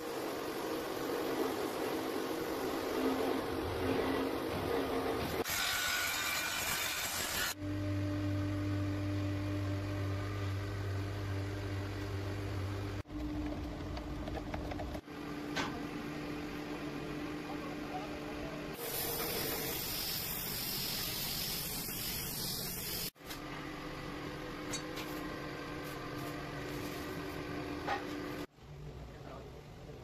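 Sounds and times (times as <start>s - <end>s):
paint spray gun hissing: 18.8s - 23.2s.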